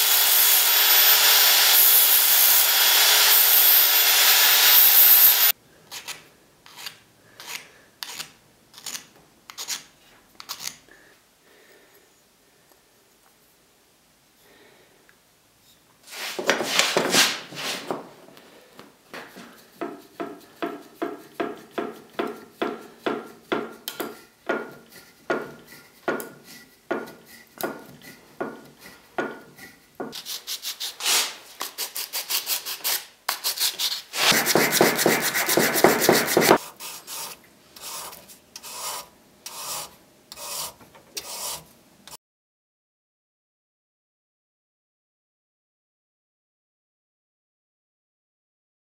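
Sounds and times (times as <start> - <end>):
sandpaper rubbing on wood: 29.6 - 41.7.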